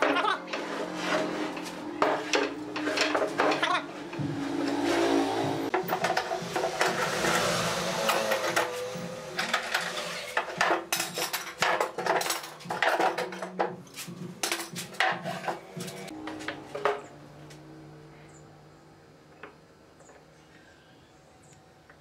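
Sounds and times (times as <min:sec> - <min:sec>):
metal pipe clamps clanking: 0:02.0 - 0:03.8.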